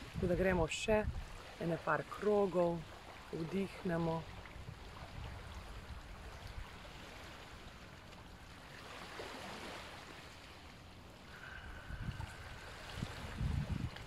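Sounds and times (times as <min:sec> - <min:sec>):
sea surf rushing: 0:06.4 - 0:14.0
faint thin steady tone: 0:11.2 - 0:13.5
soft breathing hiss: 0:11.2 - 0:13.5.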